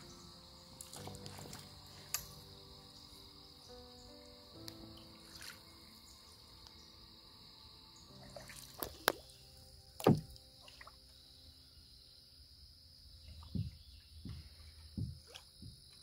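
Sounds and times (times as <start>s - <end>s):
paddle splashes and drips: 0.0s - 2.6s, 4.6s - 6.8s, 8.1s - 11.3s, 13.2s - 16.0s
paddle knock: 10.0s - 10.4s, 13.4s - 16.0s.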